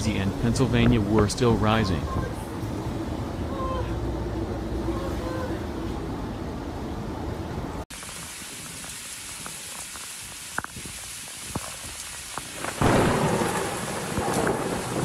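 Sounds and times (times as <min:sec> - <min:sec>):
heavy rain on water: 0:07.9 - 0:15.0
thunder rumbling: 0:10.8 - 0:15.0.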